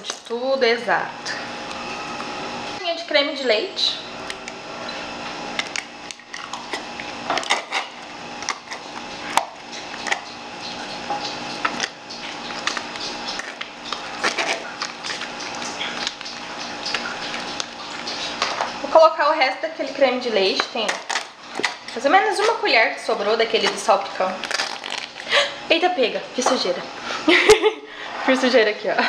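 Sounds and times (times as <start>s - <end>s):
cardboard carton crinkling: 23.6s - 25.3s.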